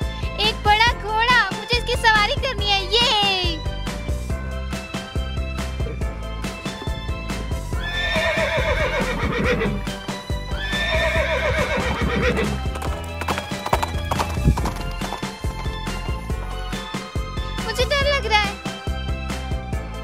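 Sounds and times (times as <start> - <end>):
background music: 0.0 - 20.0
hooves clip-clopping: 6.5 - 16.9
horse neighing: 7.8 - 9.9, 10.5 - 15.1.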